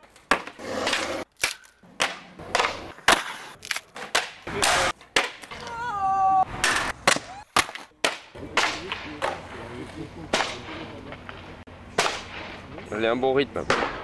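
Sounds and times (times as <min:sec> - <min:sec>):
skateboard cracking and slapping: 0:00.0 - 0:05.8, 0:06.5 - 0:09.6
skateboard wheels rolling: 0:00.0 - 0:07.8.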